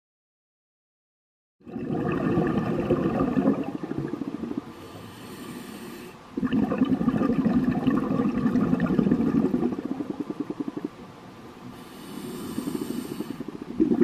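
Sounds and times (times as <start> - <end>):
exhaled bubbles burbling: 1.6 - 4.8, 6.3 - 11.0, 12.4 - 14.0
regulator inhalation hiss: 4.7 - 6.3, 11.7 - 13.8.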